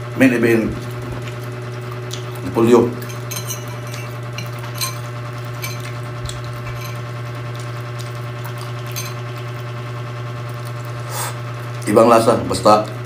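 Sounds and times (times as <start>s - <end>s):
steady low hum: 0.0s - 13.0s
cabbage crunching: 0.8s - 11.1s.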